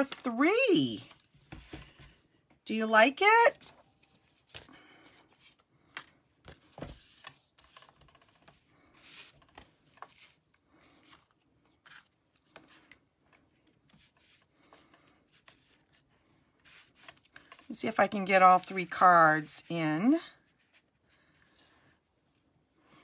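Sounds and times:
cards rustling and tapping on mat: 5.4 - 10.4.

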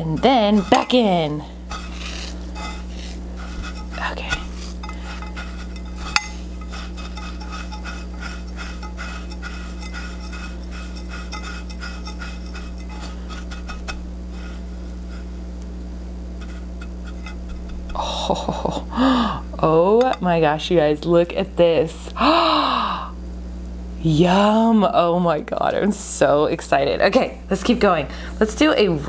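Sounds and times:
breadcrumbs crackling: 0.0 - 15.8
low hum: 0.0 - 26.4.

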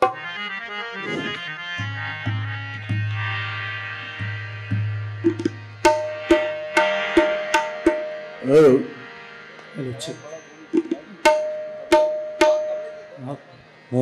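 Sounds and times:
tabla strokes: 0.0 - 0.3, 1.0 - 8.4, 10.7 - 13.1
harmonium chords: 0.0 - 14.0.

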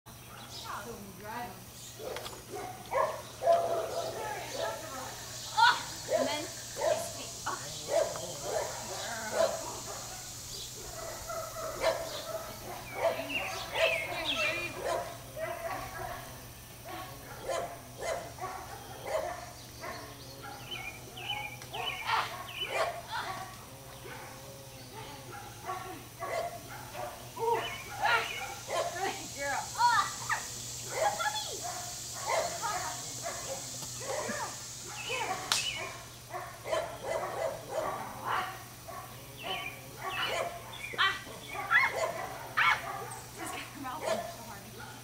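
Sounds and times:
dog barking: 2.0 - 5.1, 6.1 - 7.2, 7.8 - 24.4, 25.0 - 29.2, 30.2 - 45.0
sharp smack: 35.5 - 35.8.

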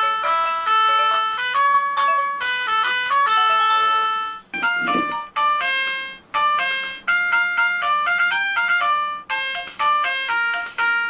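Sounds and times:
toy playing electronic melody: 0.0 - 11.0.

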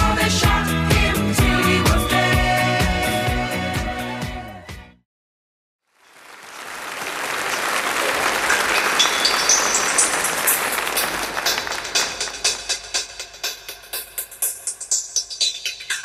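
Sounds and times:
disco music: 0.0 - 4.8, 8.4 - 16.0
applause: 5.8 - 13.3.

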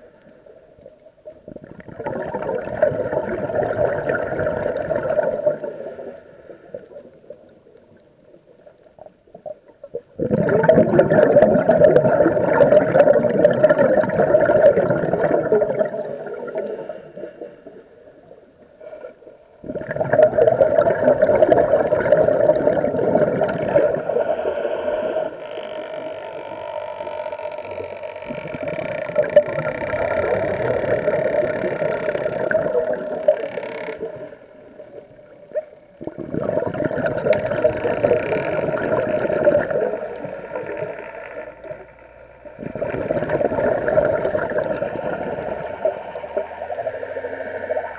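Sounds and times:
regulator exhaust bubbling underwater: 1.4 - 5.6, 9.9 - 16.6, 19.6 - 24.0, 28.2 - 34.2, 34.9 - 40.9, 41.6 - 47.9.

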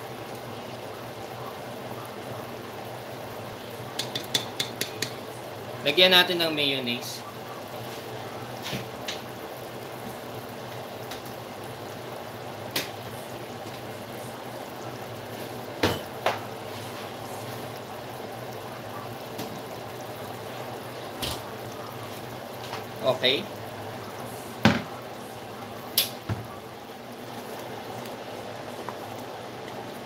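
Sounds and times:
sauce bubbling in a pot: 0.0 - 30.0.

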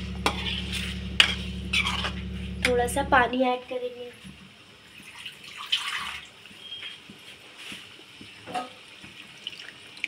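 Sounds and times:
water pouring into pan: 4.9 - 6.4, 9.2 - 10.0.

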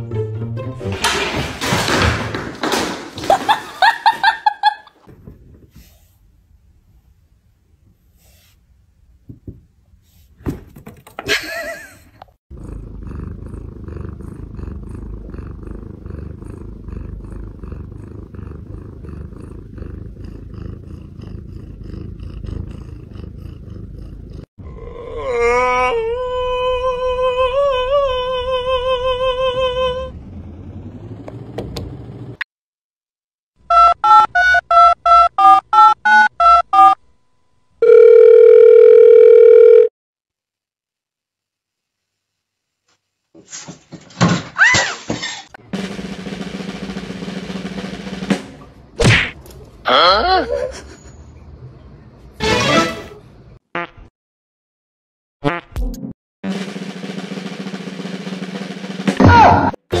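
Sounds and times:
cat purring: 12.5 - 24.5.

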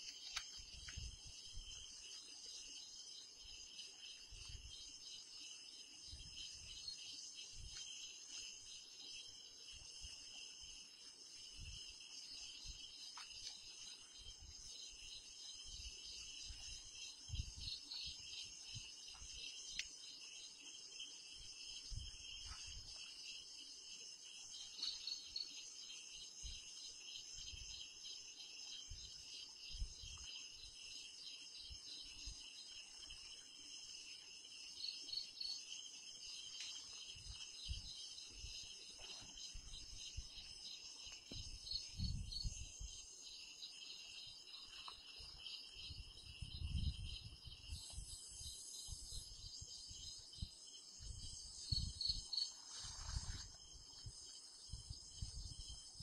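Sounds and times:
night insects chirring: 0.0 - 56.0.

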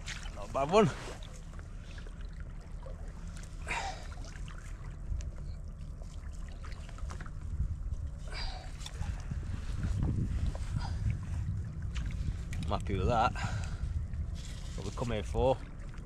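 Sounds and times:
small waves lapping: 0.0 - 16.0
wind buffeting microphone: 7.0 - 16.0.

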